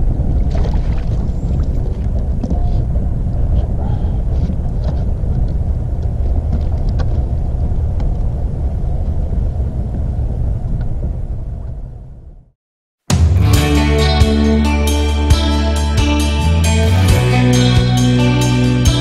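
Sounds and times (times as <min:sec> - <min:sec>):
wind buffeting microphone: 0:00.0 - 0:12.5.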